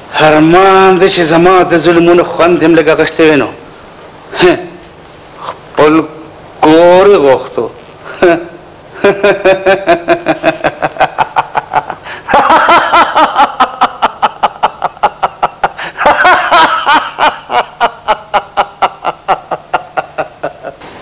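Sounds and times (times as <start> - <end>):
man laughing loudly: 4.3 - 4.8, 8.1 - 20.8.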